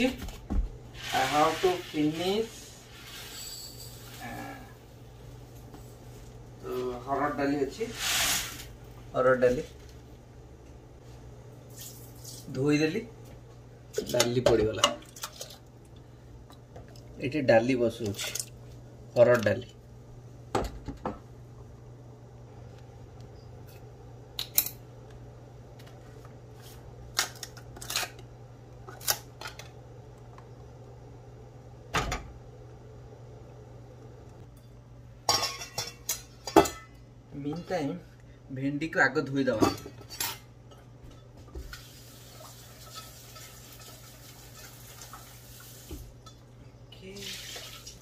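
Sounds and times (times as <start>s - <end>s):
steady low hum: 0.0s - 41.8s
faucet running into steel bowl: 41.7s - 45.9s, 47.2s - 48.0s.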